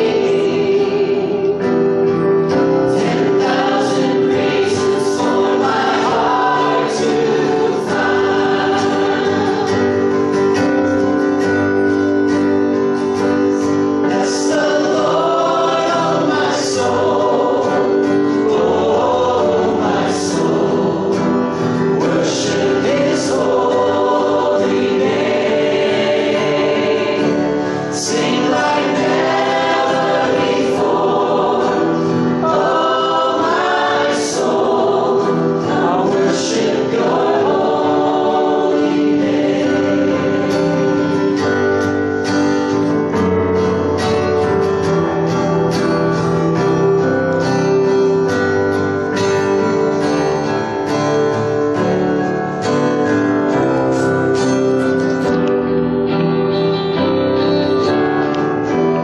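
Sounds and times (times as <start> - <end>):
voices singing a hymn: 0.0 - 43.0
acoustic guitar: 0.0 - 59.0
keyboard: 0.0 - 59.0.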